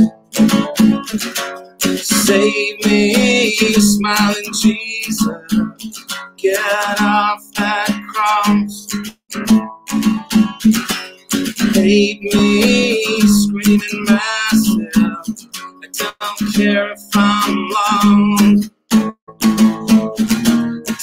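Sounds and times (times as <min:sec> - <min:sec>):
acoustic guitar strumming: 0:00.0 - 0:21.0
man singing: 0:02.0 - 0:05.8, 0:06.4 - 0:09.0, 0:11.6 - 0:18.7.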